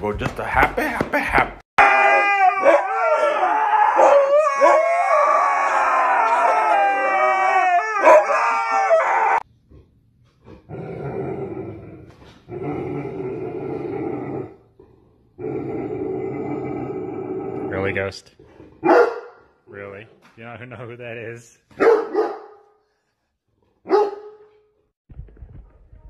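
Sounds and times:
husky howling: 0:01.8 - 0:09.5.

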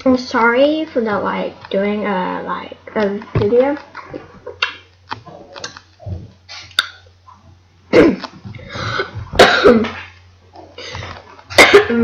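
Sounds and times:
steady low hum: 0:00.0 - 0:12.0
girl coughing: 0:07.9 - 0:08.3, 0:09.4 - 0:10.1, 0:11.5 - 0:12.0.

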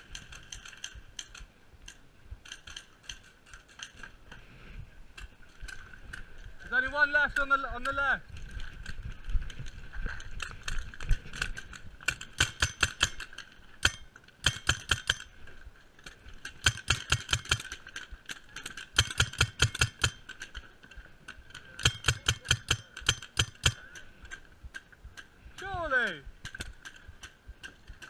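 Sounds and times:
paintball marker firing bursts: 0:12.1 - 0:15.3, 0:16.6 - 0:17.8, 0:18.9 - 0:20.3, 0:21.8 - 0:23.9.

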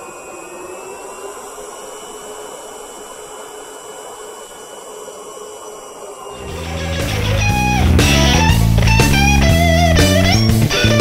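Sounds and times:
vacuum motor whirring: 0:00.0 - 0:09.6
rock music with electric guitar: 0:06.4 - 0:11.0.

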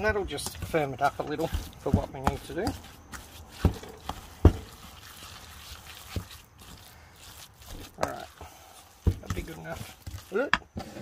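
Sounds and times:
spoon squelching wet mixture: 0:00.0 - 0:10.8.

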